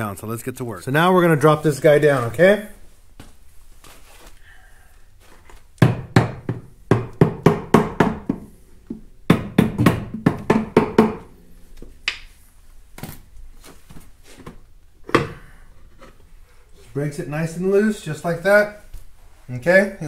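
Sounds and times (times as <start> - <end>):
rubber mallet knocking on cover: 5.8 - 11.3.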